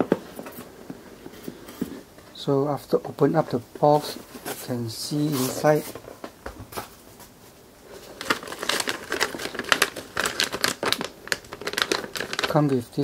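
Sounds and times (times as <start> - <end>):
plastic bag crinkling: 7.9 - 13.0.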